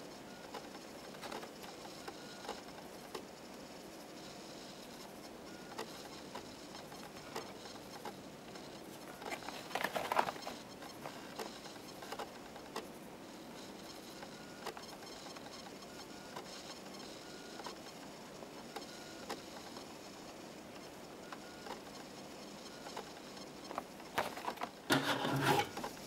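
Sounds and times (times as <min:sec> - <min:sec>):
plastic blister package crackling: 0:09.2 - 0:10.6, 0:24.1 - 0:25.8.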